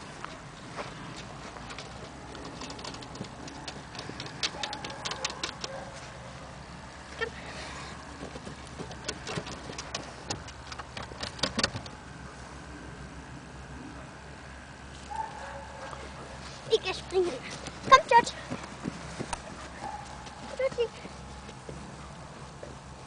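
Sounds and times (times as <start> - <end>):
dog claws tapping wooden boards: 1.6 - 5.8, 8.2 - 12.0.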